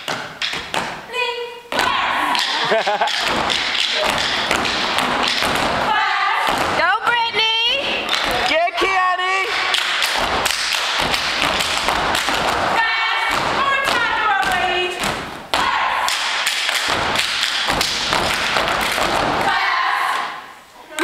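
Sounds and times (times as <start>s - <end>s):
feet stomping on stage floor: 1.7s - 7.4s, 9.5s - 19.5s
people shouting: 1.8s - 2.7s, 5.7s - 6.7s, 15.5s - 16.2s, 19.4s - 20.2s
hands clapping and slapping: 2.3s - 5.8s, 8.0s - 19.5s.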